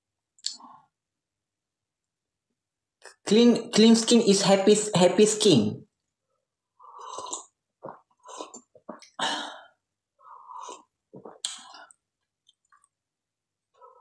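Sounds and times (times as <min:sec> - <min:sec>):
person slurping and swallowing tea: 0:06.7 - 0:09.2, 0:10.2 - 0:12.0.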